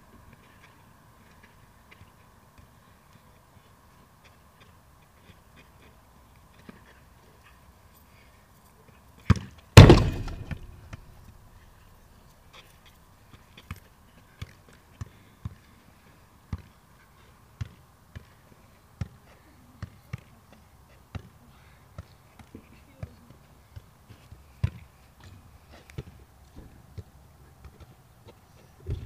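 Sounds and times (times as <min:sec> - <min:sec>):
football kicked: 0:09.3 - 0:11.0
loud bang with ringing: 0:09.8 - 0:11.0.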